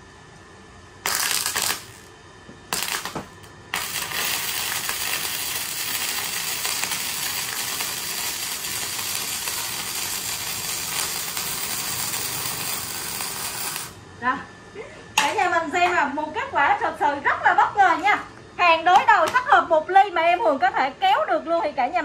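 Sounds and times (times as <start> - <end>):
welding arc crackling: 1.0 - 14.0.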